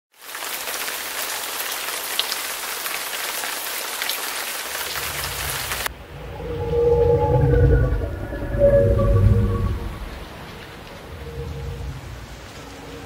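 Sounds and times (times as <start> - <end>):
rain on a metal roof: 0.1 - 5.9, 9.9 - 13.0
water dripping: 0.2 - 5.9, 6.5 - 13.0
low rumble: 5.0 - 13.0.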